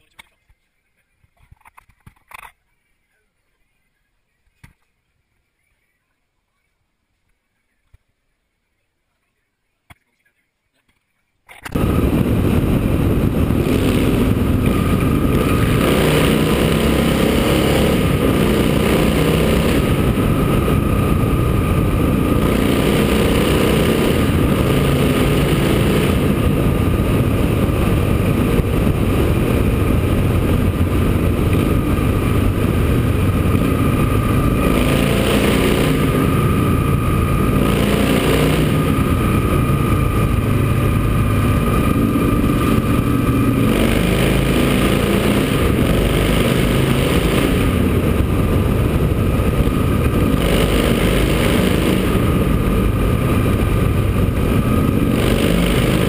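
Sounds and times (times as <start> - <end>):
motorcycle engine: 11.6 - 56.0
wind rushing over camera: 11.6 - 56.0.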